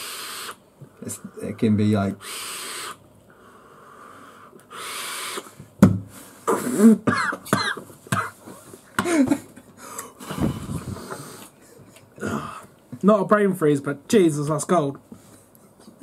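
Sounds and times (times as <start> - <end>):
man coughing: 6.5 - 9.5
laughter: 8.6 - 9.7
breathy rush of breath: 9.8 - 12.7.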